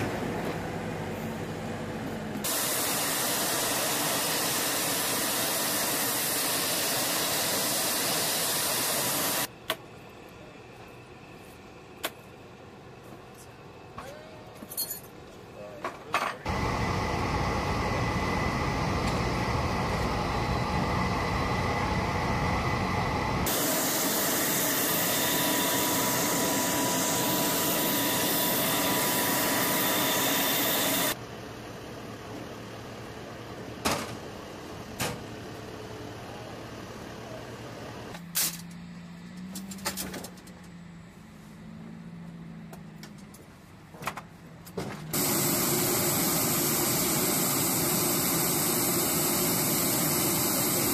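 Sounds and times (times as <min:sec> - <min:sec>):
helicopter turbine rumble: 0:01.1 - 0:09.5, 0:16.5 - 0:38.1, 0:45.1 - 0:50.9
high hiss: 0:02.4 - 0:09.5, 0:22.4 - 0:31.2, 0:45.2 - 0:50.9.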